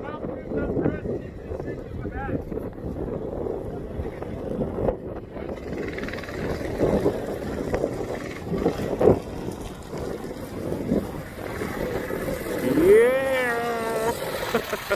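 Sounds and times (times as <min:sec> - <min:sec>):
wind noise on microphone: 0:00.0 - 0:14.9
small engines accelerating: 0:05.5 - 0:14.9.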